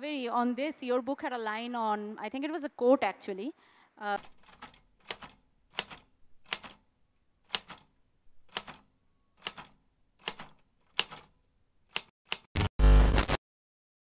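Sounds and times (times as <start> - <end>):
manual typewriter keys striking: 4.2 - 6.8, 7.5 - 7.9, 8.5 - 11.3.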